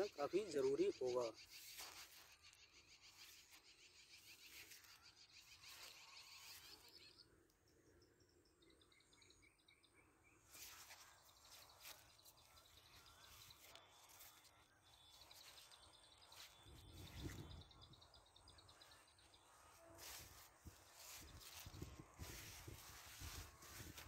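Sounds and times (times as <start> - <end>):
leaves brushing phone: 0.0 - 7.1, 10.5 - 17.6, 19.3 - 24.0.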